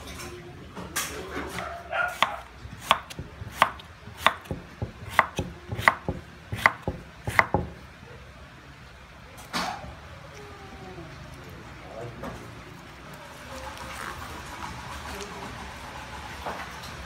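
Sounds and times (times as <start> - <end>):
knife chopping on wooden block: 2.2 - 7.8.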